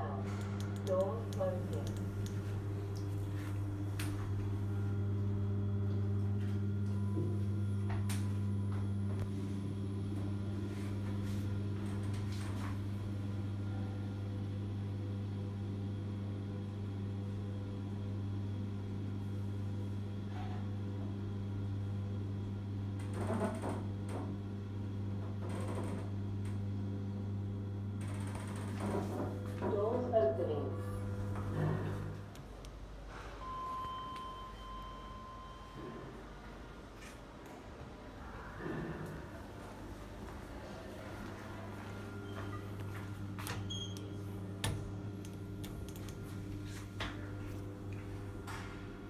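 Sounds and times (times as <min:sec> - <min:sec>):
lift car humming: 0:00.0 - 0:14.4, 0:28.0 - 0:36.9, 0:38.1 - 0:49.0
light clicks: 0:00.4 - 0:03.1.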